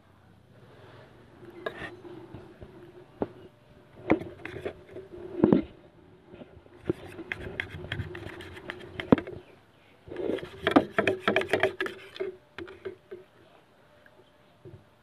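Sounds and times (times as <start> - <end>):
knife scraping a plate: 1.6 - 2.1, 4.1 - 5.6, 6.8 - 9.3, 10.1 - 12.9.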